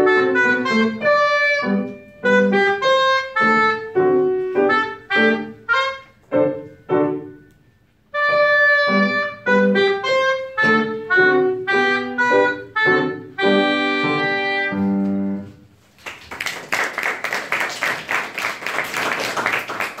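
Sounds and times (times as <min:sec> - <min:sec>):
oboe playing: 0:00.0 - 0:06.2, 0:08.1 - 0:15.5
piano accompaniment: 0:00.0 - 0:15.8
audience applause: 0:16.0 - 0:20.0.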